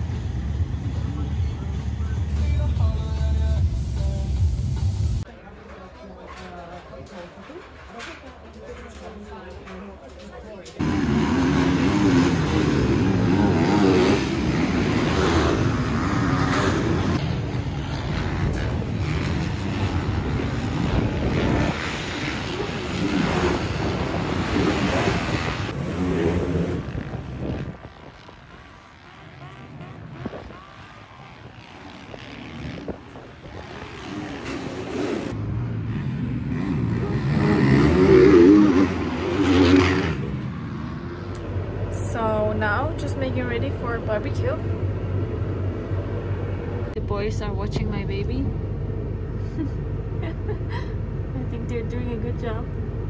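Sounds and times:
motocross bike engines revving: 10.6s - 47.3s.

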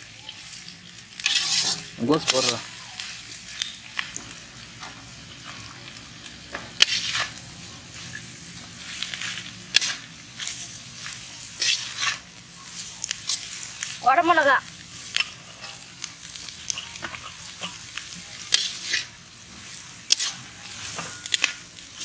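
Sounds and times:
food sizzling in pan: 0.0s - 22.0s
spatula scraping metal pan: 1.2s - 2.7s, 6.8s - 7.4s, 8.8s - 10.6s, 11.5s - 12.3s, 18.4s - 21.6s.

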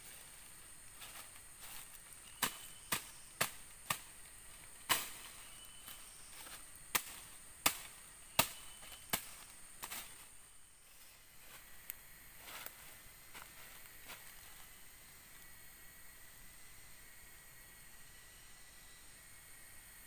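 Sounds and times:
machete chopping plants: 2.4s - 4.2s, 4.8s - 10.2s.

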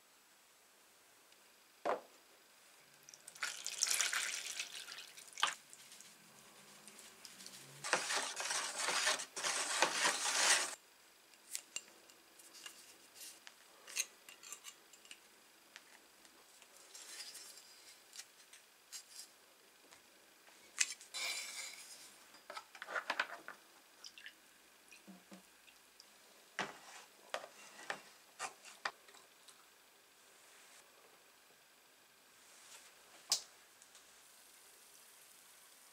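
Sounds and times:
salt pouring into water: 3.1s - 5.6s.

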